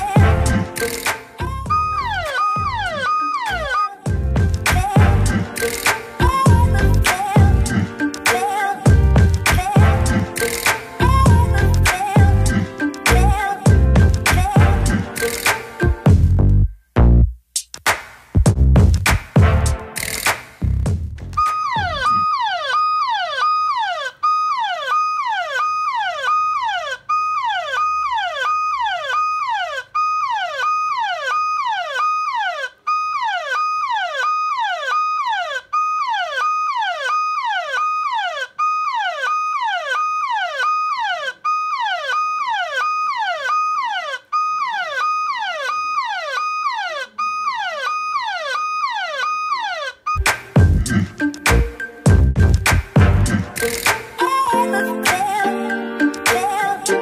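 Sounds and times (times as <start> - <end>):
electronic siren alarm from phone: 0.8 - 4.1, 21.4 - 50.2.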